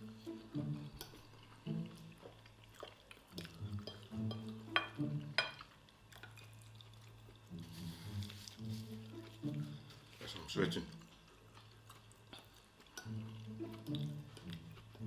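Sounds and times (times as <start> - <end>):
quiet background music: 0.0 - 15.0
chewing: 0.2 - 15.0
cutlery clinking on ceramic plate: 3.8 - 5.7.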